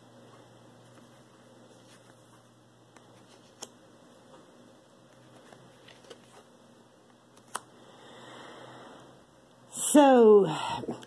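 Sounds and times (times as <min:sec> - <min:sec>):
soft card rustling: 0:00.8 - 0:03.8, 0:05.0 - 0:07.7.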